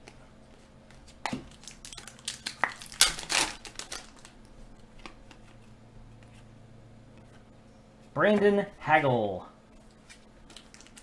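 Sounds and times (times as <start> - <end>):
cards and packaging crinkling: 1.4 - 4.4, 9.8 - 11.0.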